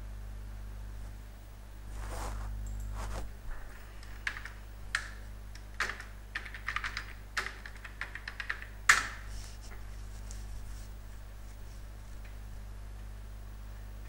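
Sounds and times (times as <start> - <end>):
keyboard keys tapping: 4.0 - 9.1.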